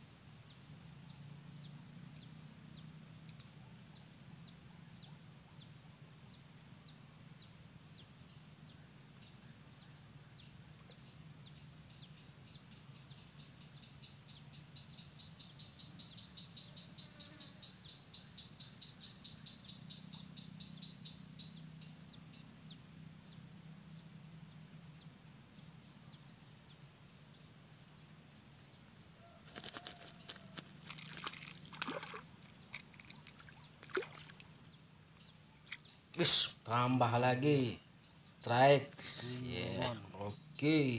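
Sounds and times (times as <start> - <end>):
fish splashing at water surface: 29.5 - 34.5
soft regular chirps: 29.5 - 40.9.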